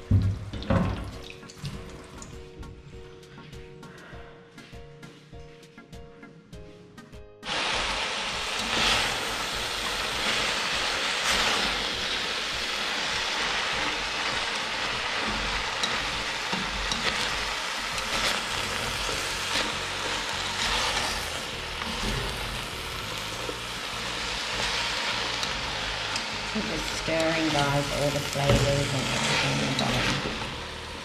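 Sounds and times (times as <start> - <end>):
vegetables sizzling in oil: 7.4 - 31.0.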